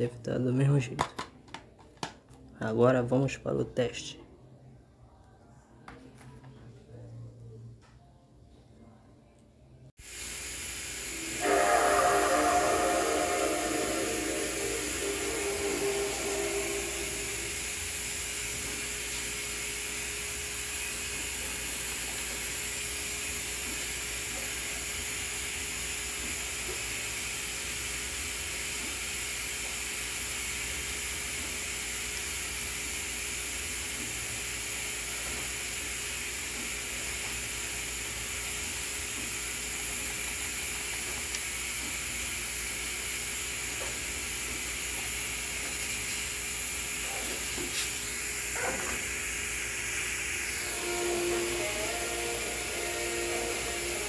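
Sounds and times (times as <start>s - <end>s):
steady hiss: 10.0s - 25.4s, 38.8s - 54.0s
low hum: 10.6s - 18.8s.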